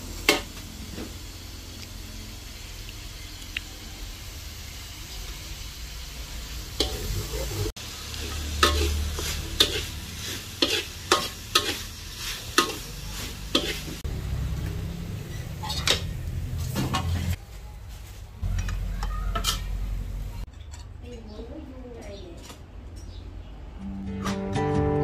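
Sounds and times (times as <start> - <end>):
food frying in a pan: 0.0 - 17.4
utensil scraping and knocking pan: 8.3 - 11.9, 12.5 - 14.0.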